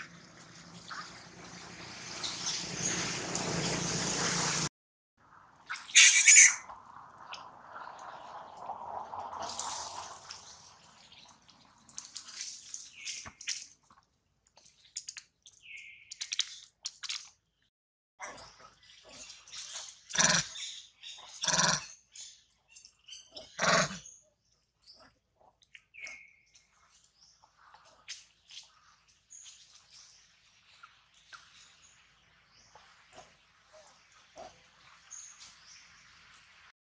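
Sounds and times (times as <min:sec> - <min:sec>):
macaques squeaking: 0:05.8 - 0:06.6
macaque harsh calls: 0:05.9 - 0:06.6.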